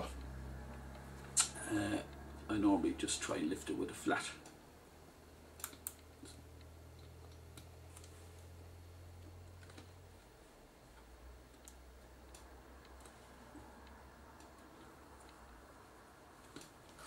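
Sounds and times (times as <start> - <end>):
low hum: 0.0 - 17.0
small clicks and taps: 5.6 - 8.2, 10.9 - 15.6.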